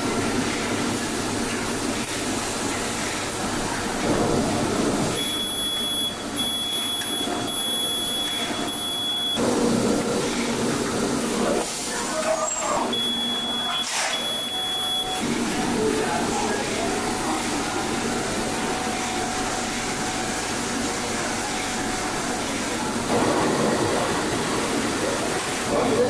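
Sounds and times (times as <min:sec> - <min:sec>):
machine and air-handling noise: 0:00.0 - 0:26.0
high electronic beeps: 0:05.2 - 0:09.4.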